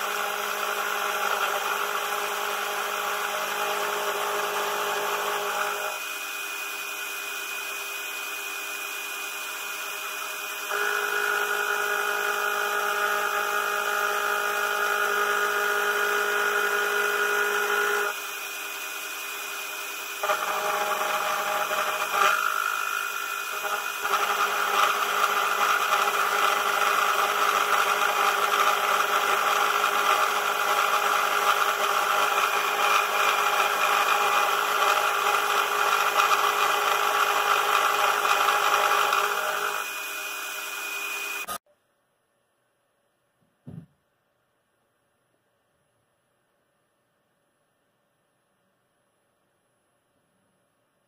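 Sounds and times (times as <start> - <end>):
end mill cutting metal: 9.8 - 41.6.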